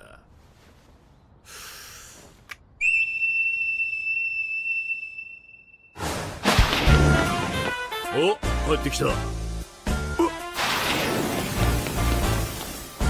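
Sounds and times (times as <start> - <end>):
steady high whistle: 2.8 - 6.0.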